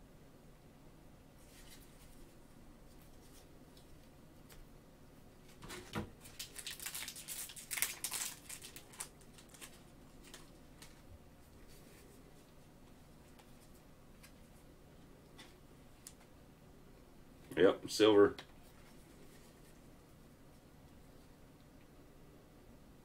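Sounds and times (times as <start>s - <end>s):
plastic wrapper crinkling: 6.2s - 11.1s.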